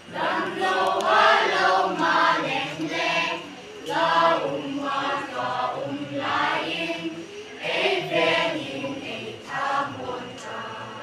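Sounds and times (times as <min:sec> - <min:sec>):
children's choir singing: 0:00.0 - 0:11.0.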